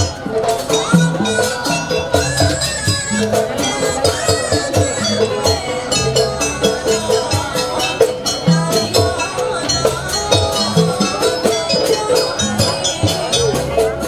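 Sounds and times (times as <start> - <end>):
drums beating quick rhythm: 0.0 - 14.0
pitched melodic notes: 0.0 - 14.0.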